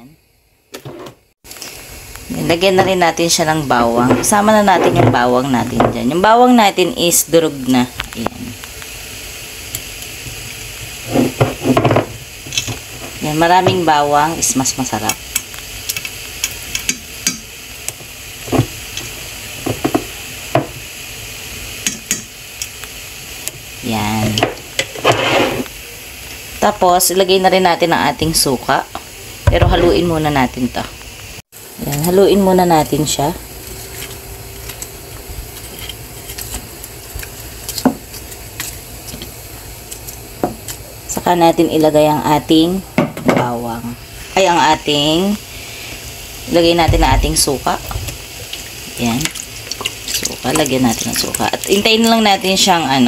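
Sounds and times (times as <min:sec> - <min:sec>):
wooden spatula scraping a pan: 0:11.0 - 0:11.9, 0:24.8 - 0:25.7
spoon tapping nonstick pan: 0:21.8 - 0:22.3.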